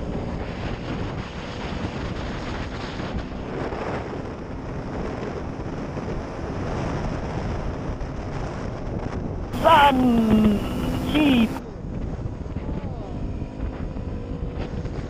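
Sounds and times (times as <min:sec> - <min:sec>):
motorcycle engine drone: 0:09.6 - 0:11.6.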